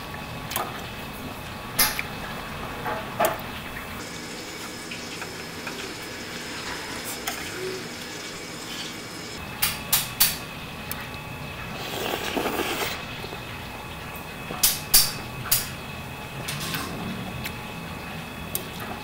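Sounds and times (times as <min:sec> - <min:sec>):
sauce simmering and bubbling: 0:11.6 - 0:13.8.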